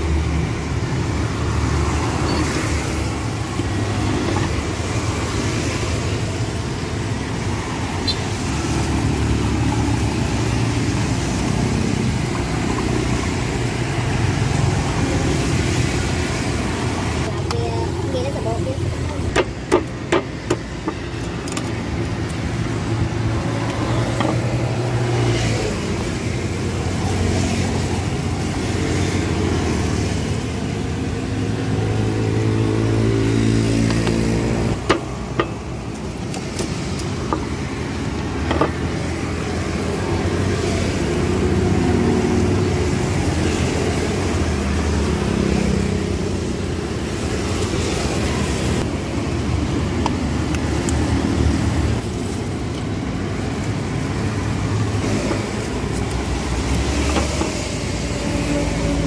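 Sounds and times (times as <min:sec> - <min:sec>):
vehicle engines passing: 0:00.0 - 0:59.0
sharp clicks and knocks: 0:19.3 - 0:22.5, 0:33.8 - 0:37.6, 0:38.4 - 0:39.0.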